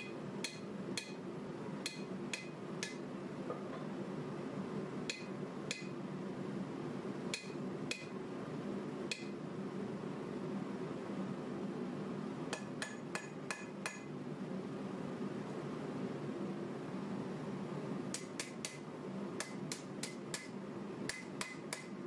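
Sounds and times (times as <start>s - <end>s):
hammer striking metal on anvil: 0.0s - 1.2s, 1.8s - 3.0s, 5.1s - 6.0s, 7.3s - 8.1s, 9.1s - 9.4s, 12.5s - 14.1s, 18.2s - 18.8s, 19.4s - 20.5s, 21.1s - 22.0s
steady low hum: 0.0s - 22.0s.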